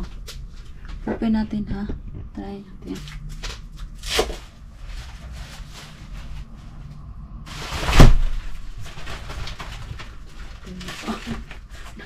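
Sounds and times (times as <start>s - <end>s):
plastic pouches rustling: 8.6s - 12.0s.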